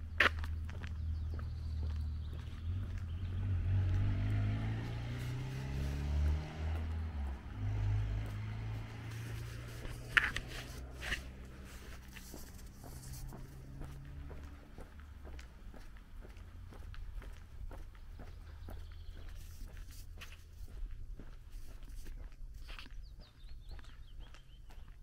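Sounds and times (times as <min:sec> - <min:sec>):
footsteps on pavement: 0:00.0 - 0:25.0
vehicle engine revving: 0:01.0 - 0:17.6.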